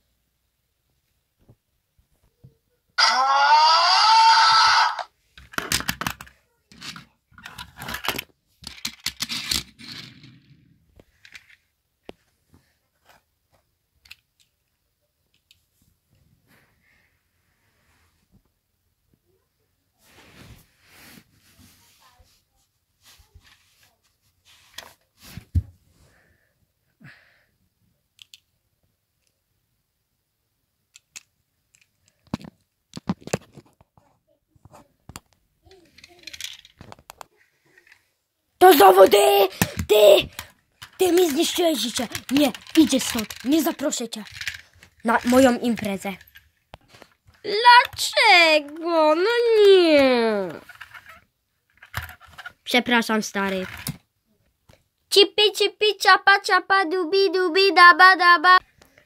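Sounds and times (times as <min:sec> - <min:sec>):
scraping and rustling handling noise: 0:05.3 - 0:13.7, 0:20.0 - 0:26.1, 0:31.7 - 0:49.2, 0:50.2 - 0:54.0.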